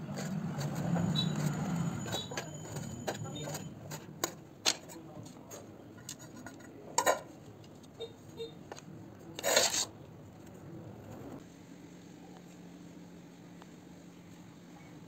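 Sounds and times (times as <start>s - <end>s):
metal scraping on counter: 0.0s - 7.3s, 9.4s - 9.9s.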